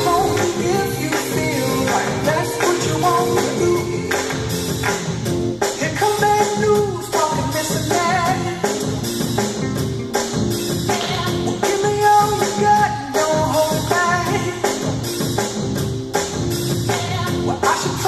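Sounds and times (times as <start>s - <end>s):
pop song with singing: 0.0s - 9.4s, 10.6s - 18.0s
drum beat: 0.0s - 18.0s.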